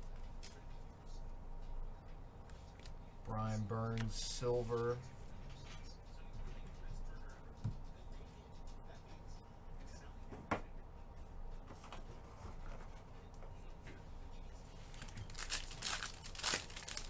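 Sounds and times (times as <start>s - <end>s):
foil pack crinkling and tearing: 14.9s - 17.0s.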